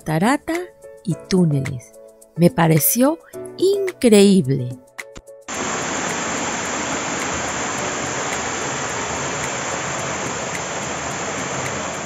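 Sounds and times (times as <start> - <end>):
waterfall rushing: 5.5 - 12.0.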